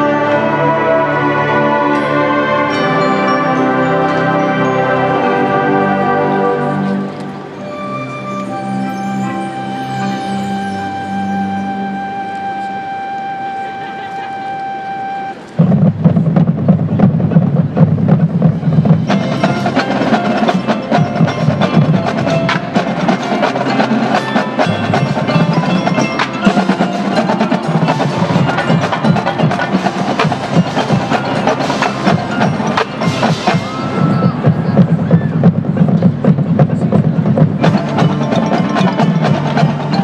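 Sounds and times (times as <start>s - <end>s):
bells: 0.0s - 15.6s, 18.6s - 40.0s
marimba: 1.8s - 15.6s, 18.7s - 40.0s
xylophone: 2.0s - 6.0s, 7.5s - 11.7s, 19.0s - 34.5s, 37.5s - 40.0s
marching drumline strokes: 15.1s - 40.0s.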